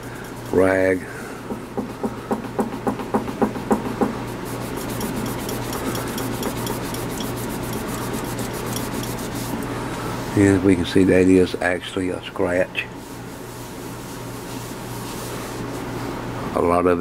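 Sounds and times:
rag rubbing on metal: 0.0s - 1.0s, 4.2s - 9.7s.

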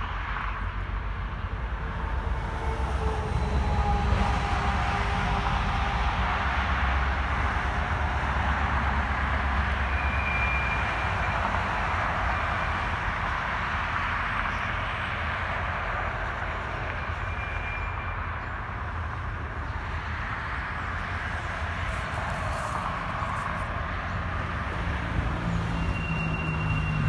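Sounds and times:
freight train rolling by: 0.0s - 27.0s
highway traffic rumble and hiss: 0.0s - 27.0s
truck deep rumble: 0.0s - 27.0s
faint high squeals: 9.8s - 12.8s, 16.9s - 18.6s, 25.4s - 27.0s.

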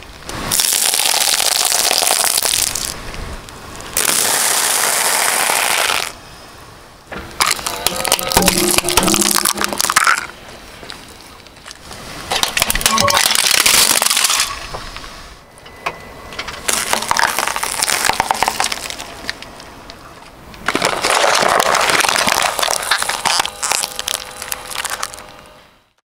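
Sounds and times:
car tyre crushing objects: 7.1s - 10.4s, 11.5s - 15.0s, 16.5s - 25.5s
plastic toy cracking apart: 20.7s - 25.3s.

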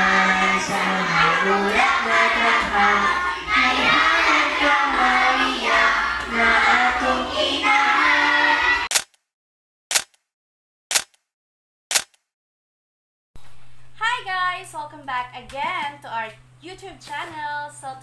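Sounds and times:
children singing in unison: 0.0s - 8.9s.

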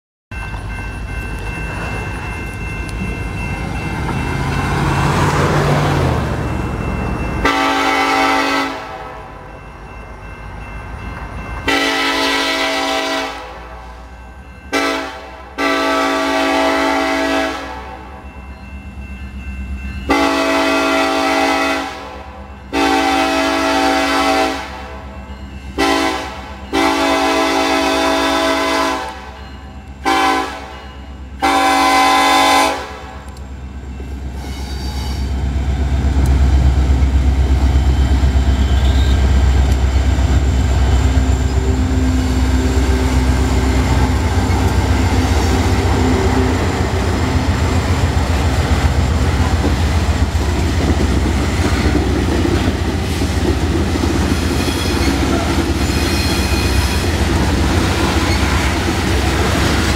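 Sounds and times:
locomotive air horn blasts: 7.4s - 9.5s, 11.7s - 13.9s, 14.7s - 18.1s, 20.1s - 25.1s, 25.8s - 29.4s, 30.0s - 30.8s, 31.4s - 33.3s, 38.5s - 39.3s.

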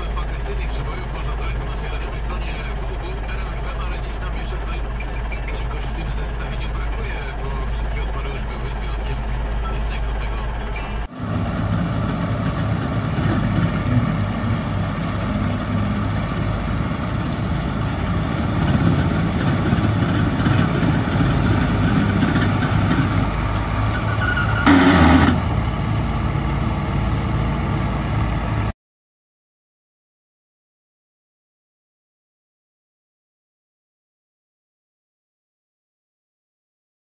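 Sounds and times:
combine harvester droning: 0.0s - 28.7s.

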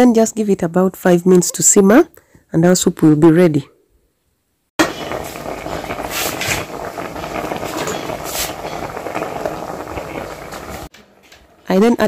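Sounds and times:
soup bubbling and popping: 4.8s - 11.7s.

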